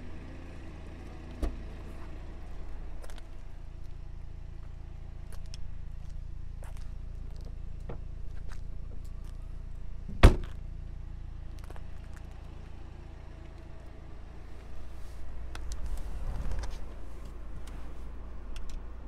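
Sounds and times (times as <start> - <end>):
low handling rumble: 1.0 - 19.0
car hatch shutting thunk: 10.1 - 10.6.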